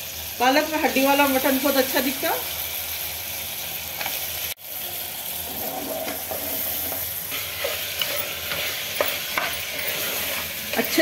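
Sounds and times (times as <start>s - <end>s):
meat sizzling in hot oil: 0.0s - 11.0s
wooden spatula stirring: 5.5s - 11.0s.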